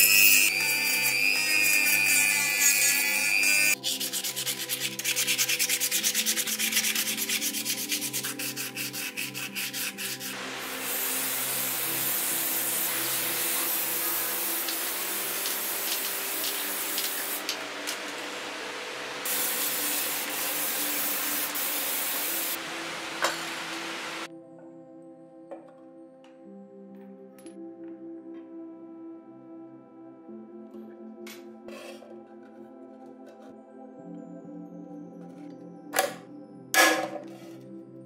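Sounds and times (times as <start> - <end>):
paint spray gun hissing: 10.4 - 17.6, 19.3 - 24.3
rotary sanding drum whining: 10.4 - 24.3.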